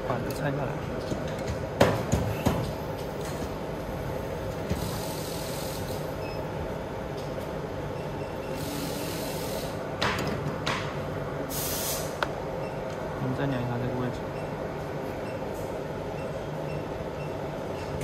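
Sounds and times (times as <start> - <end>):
steady background hum: 0.0 - 18.0
short bursts of hiss: 11.5 - 12.2.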